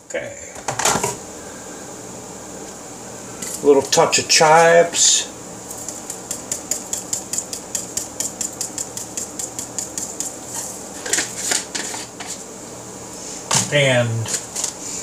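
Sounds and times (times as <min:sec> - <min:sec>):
spice shaker ticking: 0:05.7 - 0:10.6
spice shaker rattles: 0:05.7 - 0:11.6.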